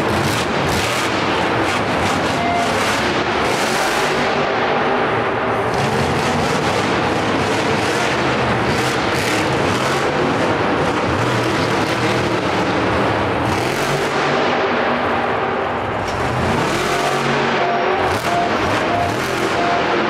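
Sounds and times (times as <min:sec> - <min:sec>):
monster truck engine running rough: 0:00.0 - 0:20.0.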